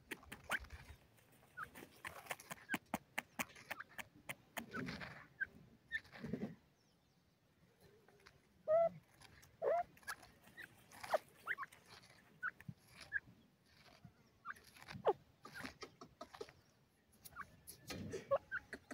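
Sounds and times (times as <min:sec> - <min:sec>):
scratching and rustling of earth: 0:00.0 - 0:06.6, 0:07.8 - 0:18.9
bird chirping calls: 0:08.2 - 0:18.9.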